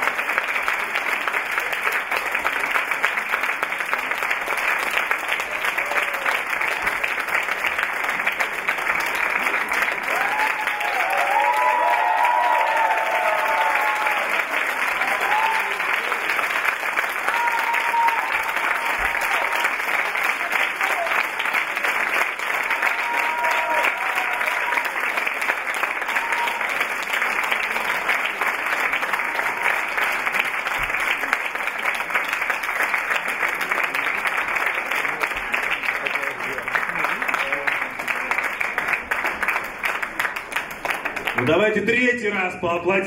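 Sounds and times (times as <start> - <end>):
audience applauding: 0.0 - 42.0.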